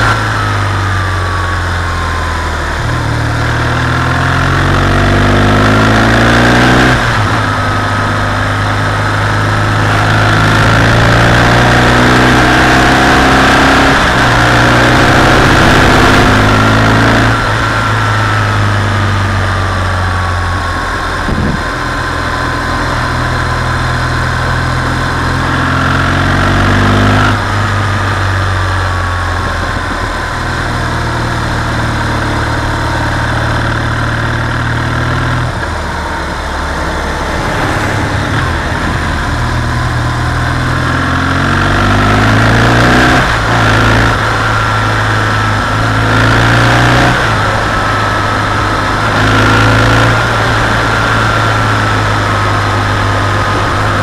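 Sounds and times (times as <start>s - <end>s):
motorcycle engine accelerating: 0.0s - 54.0s
wind noise: 6.1s - 25.6s, 26.4s - 31.4s, 36.9s - 54.0s.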